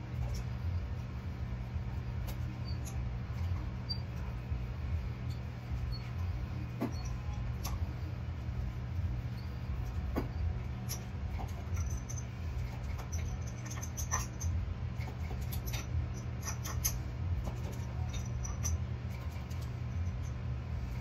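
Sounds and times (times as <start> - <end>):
steady low hum: 0.0 - 21.0
cupping pump squeaks and clicks: 2.2 - 4.4, 5.2 - 7.8, 10.3 - 20.4.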